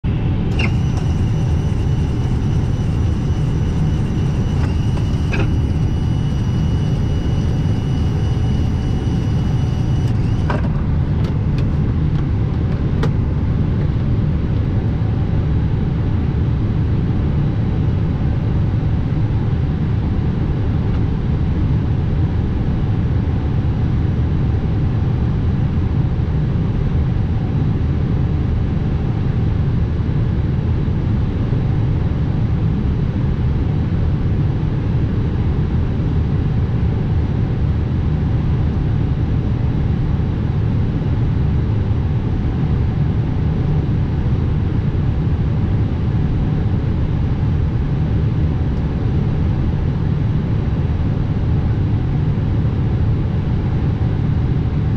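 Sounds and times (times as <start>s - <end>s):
thin high whine: 0.0s - 12.2s
low cockpit rumble: 0.0s - 18.5s.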